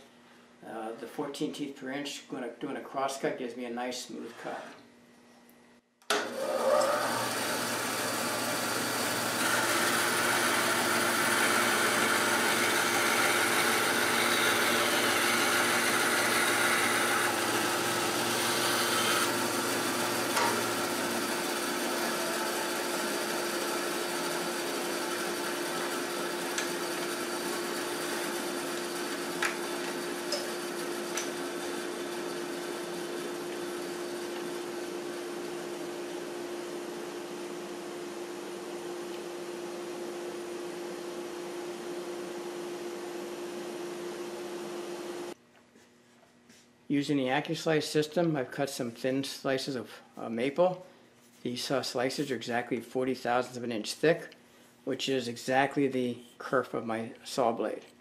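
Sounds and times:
bandsaw running: 6.1s - 37.4s
saw cutting wooden board: 6.2s - 36.4s.

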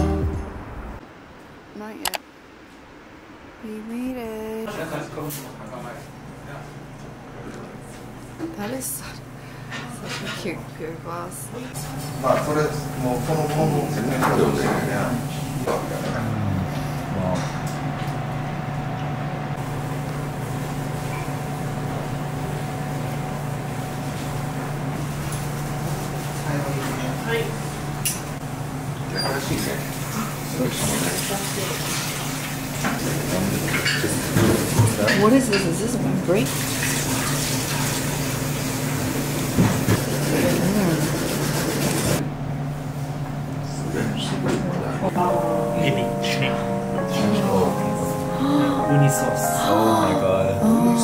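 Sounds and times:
low hum: 0.0s - 2.2s
faint constant whine: 0.0s - 29.8s
low mechanical hum of machinery: 0.0s - 48.2s.

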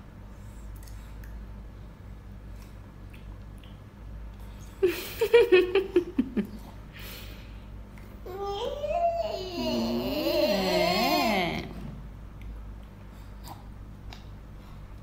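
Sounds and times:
toddler whining and crying: 8.3s - 11.6s
toddler whimpering: 8.3s - 11.7s.

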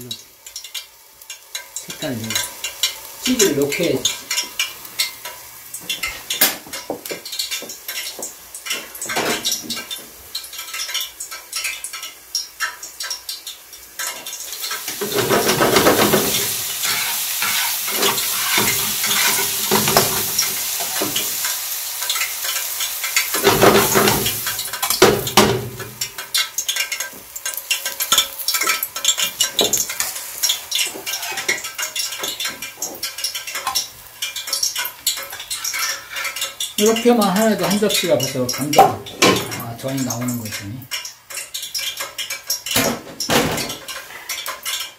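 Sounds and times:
pancake sizzling in oil: 0.0s - 44.9s
spatula scraping and tapping pan: 0.5s - 44.9s.

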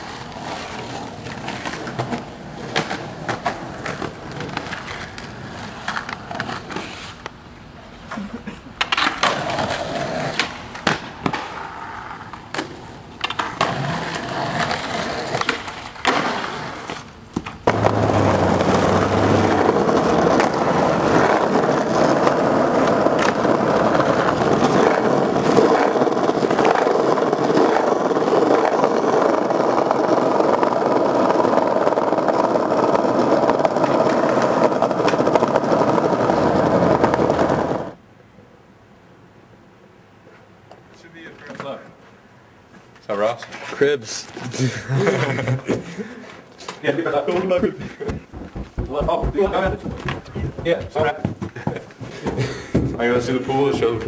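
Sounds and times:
skateboard wheels rolling on concrete: 0.0s - 38.1s, 39.2s - 54.0s
skateboard pops and landings: 8.8s - 37.9s.

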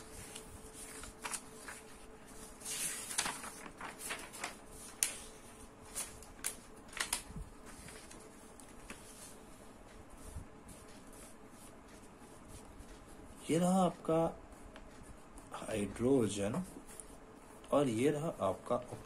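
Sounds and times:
paper sheets rustling: 0.0s - 13.7s.

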